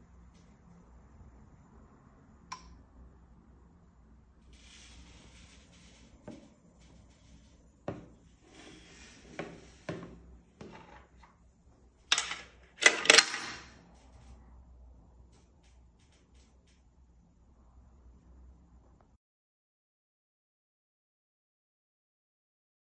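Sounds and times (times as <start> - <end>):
coins clinking into coin acceptor: 12.0 - 13.8.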